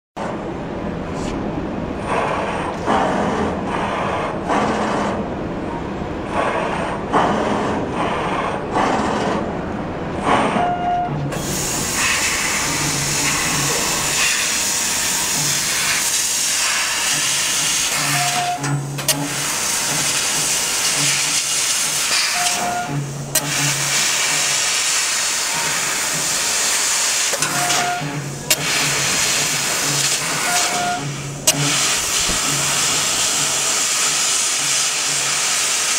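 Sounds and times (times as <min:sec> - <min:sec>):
gas hissing through cutting head: 0:11.3 - 0:35.9.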